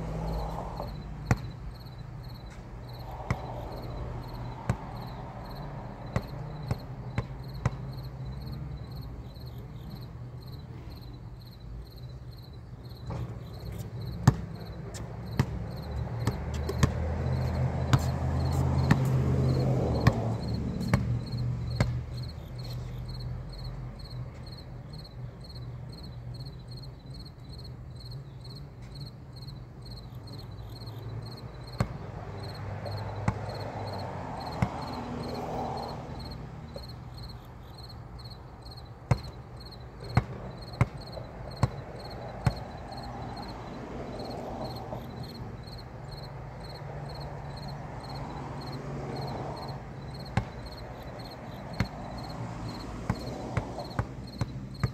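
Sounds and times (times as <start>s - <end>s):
insects chirping: 0.0s - 54.9s
basketball bouncing on concrete: 0.2s - 8.2s, 13.0s - 22.4s, 31.7s - 37.3s, 38.7s - 43.6s, 48.7s - 54.9s.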